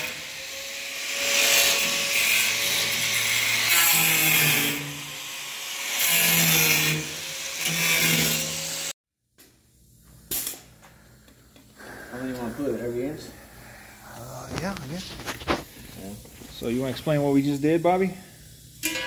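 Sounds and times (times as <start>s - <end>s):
power tool on sheet metal: 0.0s - 9.0s.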